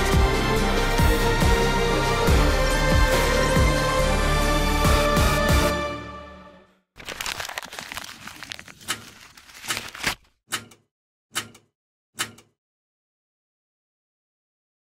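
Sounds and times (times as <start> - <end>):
paper crinkling and rustling: 7.0 - 10.3.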